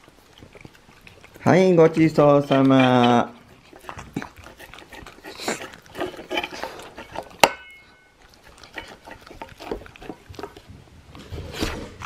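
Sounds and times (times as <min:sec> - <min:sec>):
dog licking metal bowl: 0:00.0 - 0:10.7
bowl clinking and ringing: 0:07.4 - 0:08.2.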